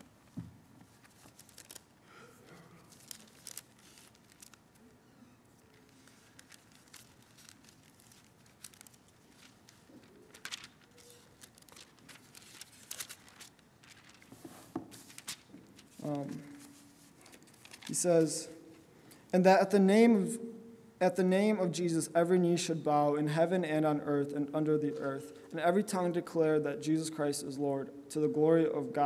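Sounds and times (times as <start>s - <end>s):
paper rustling and crinkling: 0.8s - 2.0s, 2.8s - 18.8s.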